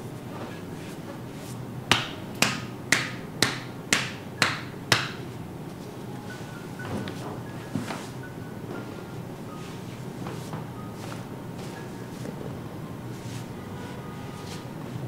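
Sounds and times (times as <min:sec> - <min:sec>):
hand percussion slapping pops: 0:01.9 - 0:05.2.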